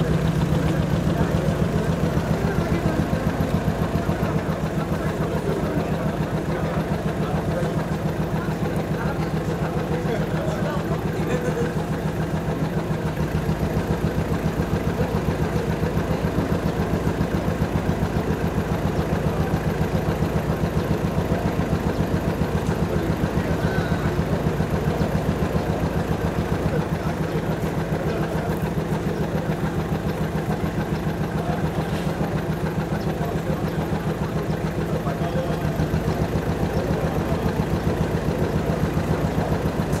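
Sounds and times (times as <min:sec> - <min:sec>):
vehicle engine idling: 0:00.0 - 0:40.0.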